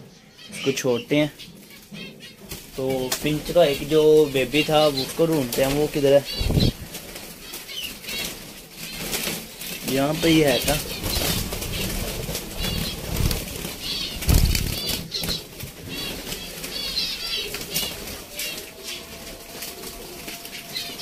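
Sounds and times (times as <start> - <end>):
finches chirping: 0.0 - 19.2
wings fluttering: 1.4 - 21.0
low thumps: 14.1 - 15.1.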